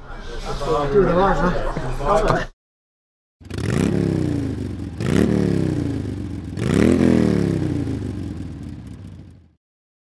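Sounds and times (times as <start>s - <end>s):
motorcycle engine revving: 3.4s - 9.6s.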